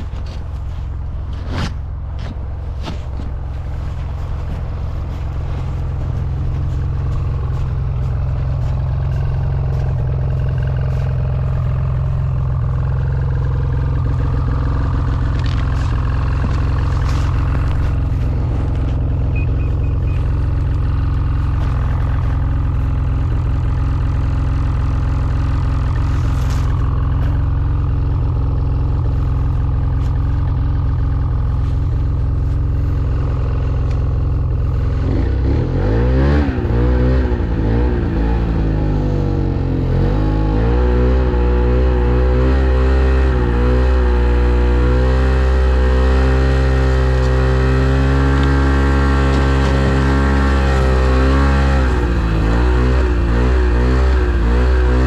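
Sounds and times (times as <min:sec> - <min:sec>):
snowmobile engine idling and revving: 0:00.0 - 0:55.0.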